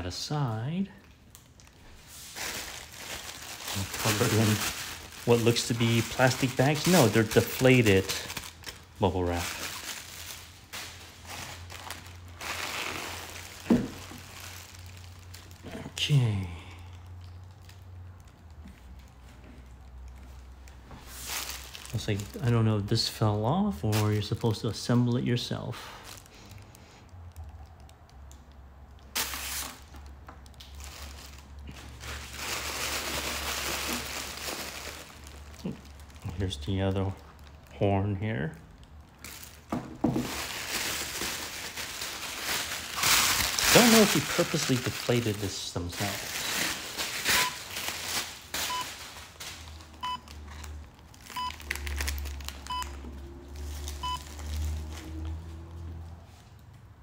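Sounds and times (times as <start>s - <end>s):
plastic wrap crinkling: 0.0s - 56.6s
short electronic beeps: 47.4s - 47.6s, 50.0s - 50.3s, 54.0s - 54.3s.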